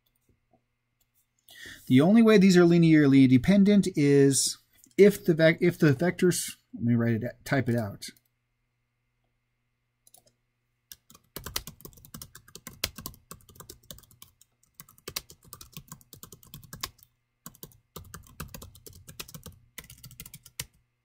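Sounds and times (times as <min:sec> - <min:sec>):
typing on a keyboard: 0:10.9 - 0:20.8.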